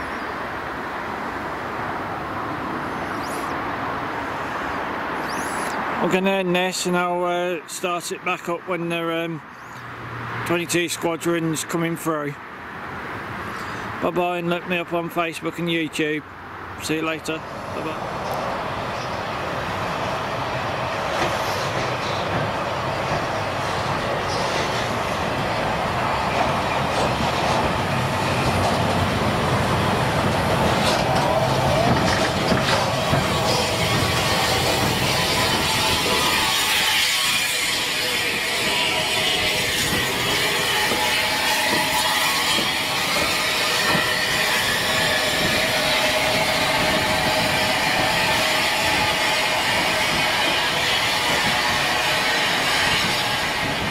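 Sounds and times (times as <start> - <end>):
steam locomotive passing: 0.0 - 53.9
steam hiss: 31.0 - 53.9.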